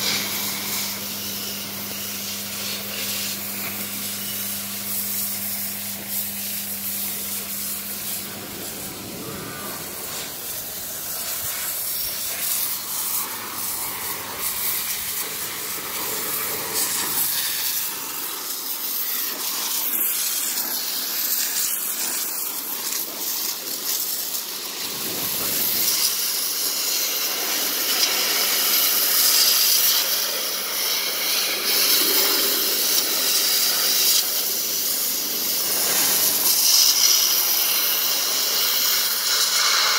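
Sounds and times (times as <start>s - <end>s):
low steady hum: 0.0s - 17.2s
hose water jet hissing: 0.0s - 39.9s.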